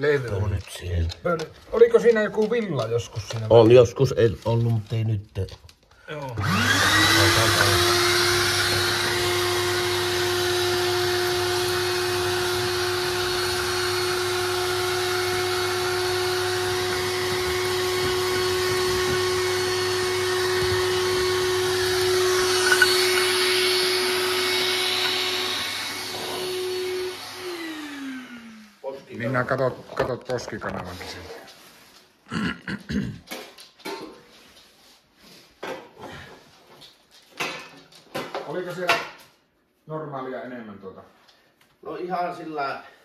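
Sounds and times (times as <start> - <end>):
vacuum cleaner running: 6.4 - 29.3.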